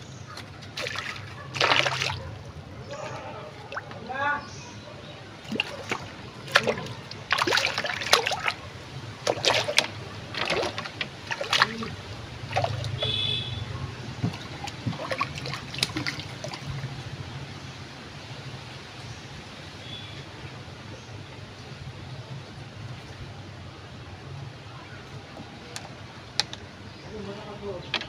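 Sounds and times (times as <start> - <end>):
fish splashing at water surface: 0.3 - 4.1, 5.3 - 17.1.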